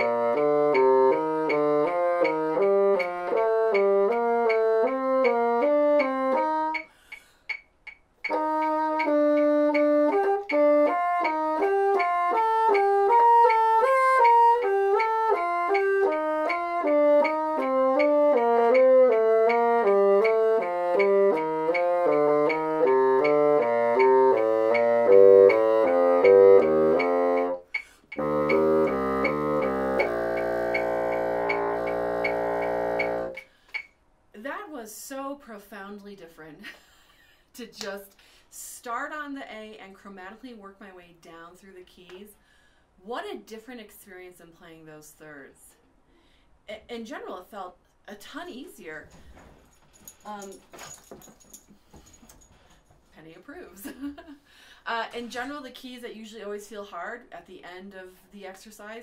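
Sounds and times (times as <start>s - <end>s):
bassoon playing: 0.0s - 6.9s, 8.2s - 33.5s.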